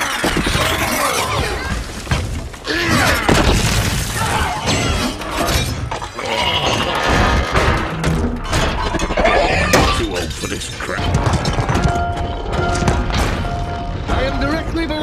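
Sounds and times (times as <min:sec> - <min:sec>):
film music: 0:04.6 - 0:15.0.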